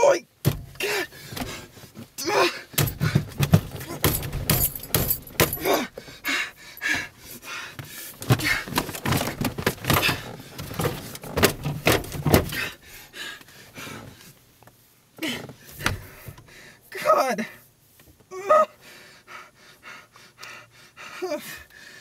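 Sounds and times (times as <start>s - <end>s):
knocks and thumps: 0.4s - 1.7s, 2.7s - 5.7s, 8.2s - 12.7s.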